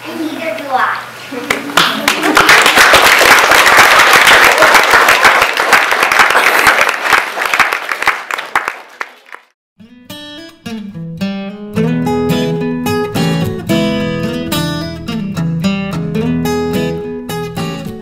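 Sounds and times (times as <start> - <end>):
children clapping: 1.5 - 9.6
acoustic guitar music: 9.8 - 18.0.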